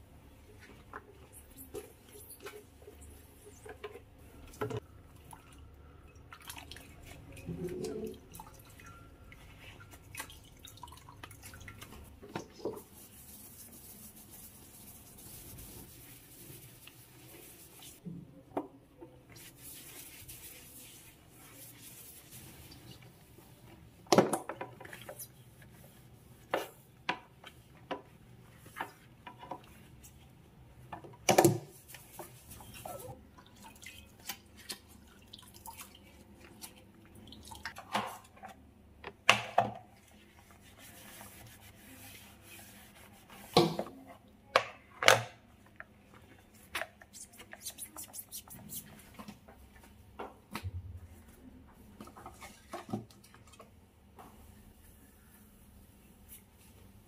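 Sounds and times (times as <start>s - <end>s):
wiping with damp cloth: 11.3s - 18.0s, 19.2s - 23.6s, 31.6s - 33.2s, 40.0s - 43.9s, 46.3s - 50.0s, 54.2s - 57.0s.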